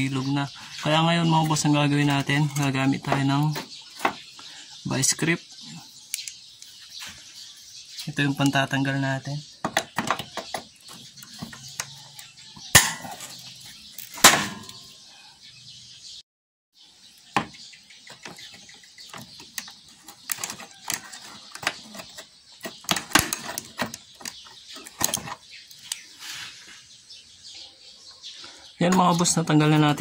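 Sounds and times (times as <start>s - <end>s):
sharp metallic snaps: 12.7s - 13.3s, 13.9s - 14.9s.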